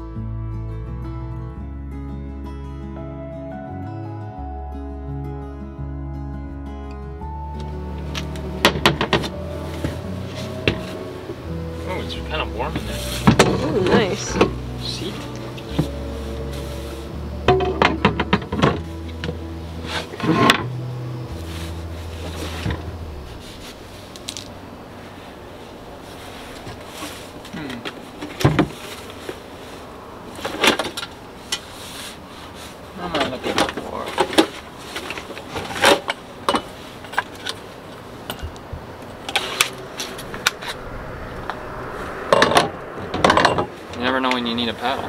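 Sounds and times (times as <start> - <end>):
low hum: 7.2 - 26.8, 38.6 - 44.8.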